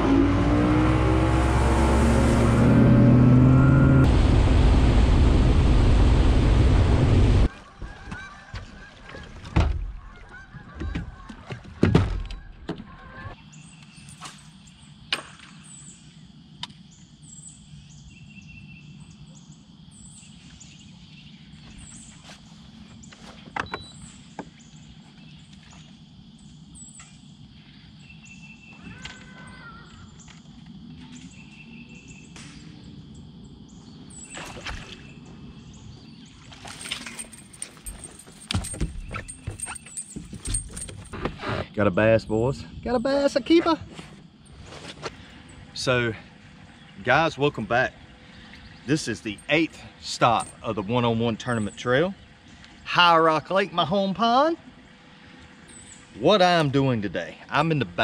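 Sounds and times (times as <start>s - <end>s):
handling noise: 36.6s - 41.6s.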